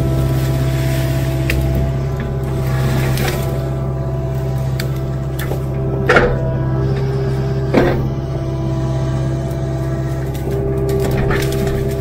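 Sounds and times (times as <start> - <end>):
branches cracking: 0.0 - 12.0
excavator diesel engine running: 0.0 - 12.0.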